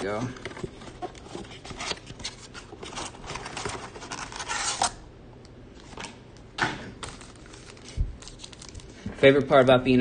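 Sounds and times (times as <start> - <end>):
foil packs rustling and crinkling: 7.0 - 9.7.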